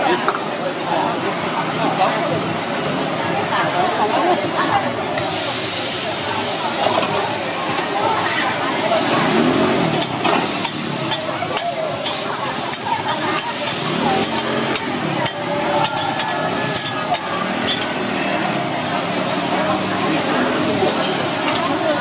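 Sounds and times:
background voices: 0:00.0 - 0:22.0
food sizzling on a griddle: 0:05.2 - 0:22.0
metal spatula scraping and tapping: 0:10.0 - 0:18.0.

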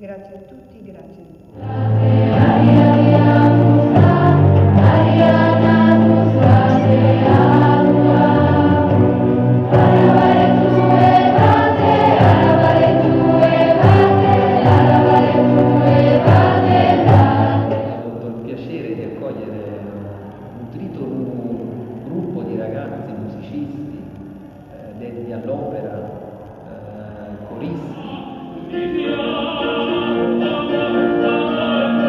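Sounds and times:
keyboard: 0:01.4 - 0:32.0
choir singing: 0:01.5 - 0:18.2, 0:27.4 - 0:32.0.

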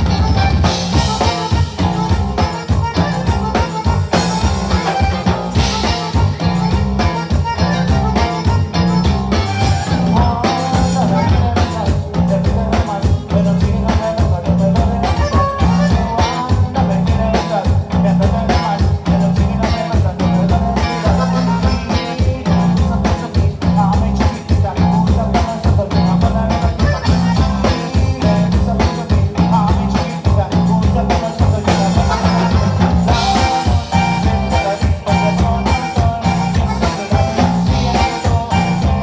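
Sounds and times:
bass: 0:00.0 - 0:39.0
button accordion: 0:00.0 - 0:39.0
drum kit beat: 0:00.0 - 0:39.0
guitar: 0:00.0 - 0:39.0.

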